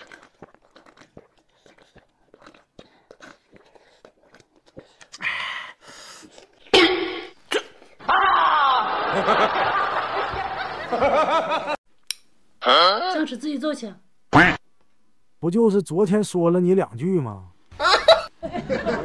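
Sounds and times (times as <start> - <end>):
soft eating sounds: 0.0 - 8.0
person laughing: 17.8 - 19.0.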